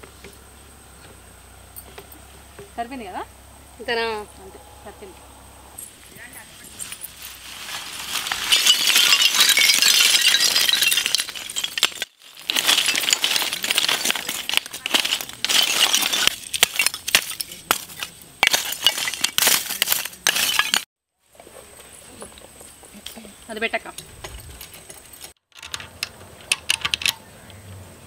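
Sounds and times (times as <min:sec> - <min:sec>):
charcoal lumps clinking: 0:05.8 - 0:20.9
charcoal pouring from sack: 0:06.9 - 0:16.4.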